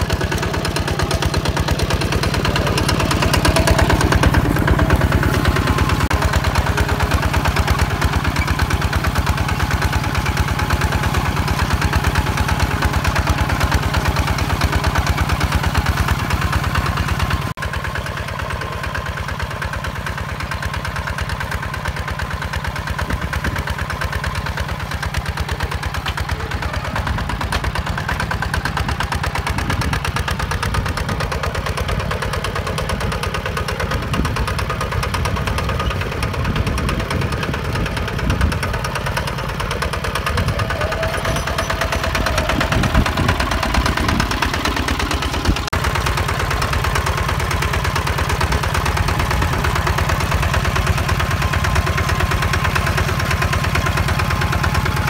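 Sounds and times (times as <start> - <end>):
tractor diesel engine under load: 0.0 - 55.0.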